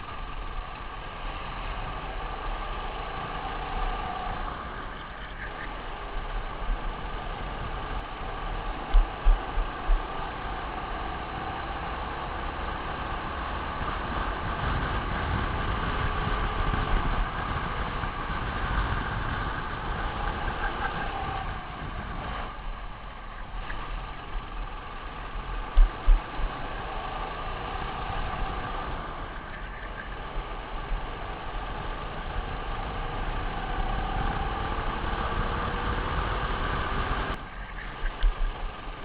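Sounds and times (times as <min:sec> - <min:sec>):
kart engine at high revs: 0:00.0 - 0:39.0
wind rumble on camera: 0:00.0 - 0:39.0.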